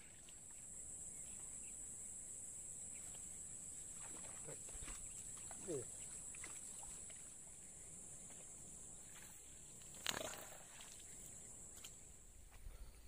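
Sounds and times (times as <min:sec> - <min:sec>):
fish splashing: 0:09.0 - 0:11.9.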